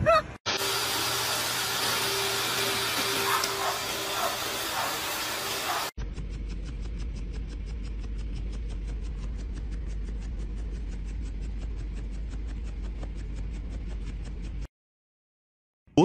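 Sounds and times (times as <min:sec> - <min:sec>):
pet dryer blowing air: 0:00.5 - 0:06.0
low hum with fast ticking: 0:06.0 - 0:14.7.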